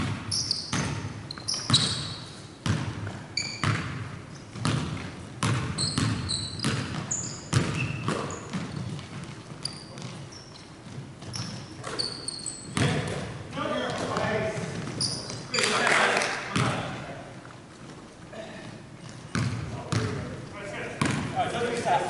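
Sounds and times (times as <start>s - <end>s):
basketball bouncing on hardwood floor: 0.0s - 2.0s, 2.6s - 10.2s, 12.7s - 13.2s, 19.1s - 20.2s, 21.0s - 21.3s
sneakers squeaking on court: 0.0s - 15.9s, 18.7s - 20.3s, 21.0s - 21.4s.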